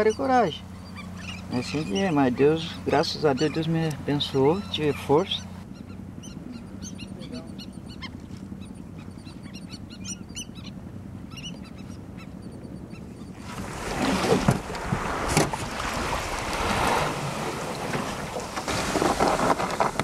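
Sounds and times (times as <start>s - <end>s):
birds calling faintly: 0.0s - 13.6s
water lapping around canoe: 0.0s - 20.0s
wind buffeting microphone: 12.0s - 20.0s
knocks on wooden canoe: 14.3s - 15.6s.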